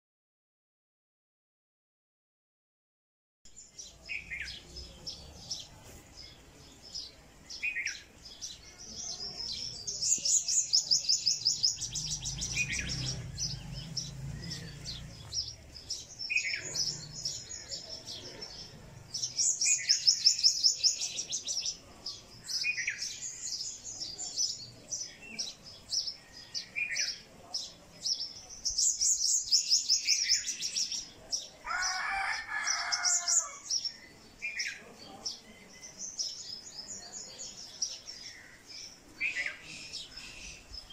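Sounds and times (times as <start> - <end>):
songbirds trilling: 3.6 - 40.9
harsh bird chatter: 3.8 - 35.4.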